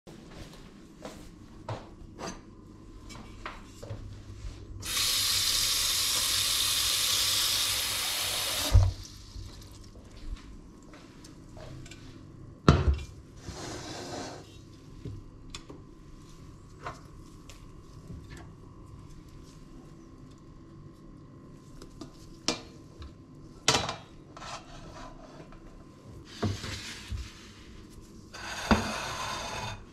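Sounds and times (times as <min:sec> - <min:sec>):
tap water filling a pot: 0:04.8 - 0:10.1.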